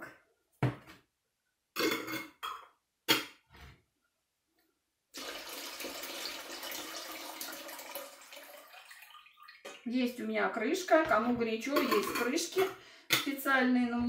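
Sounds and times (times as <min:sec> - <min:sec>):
water pouring into metal pot: 0:05.2 - 0:09.9.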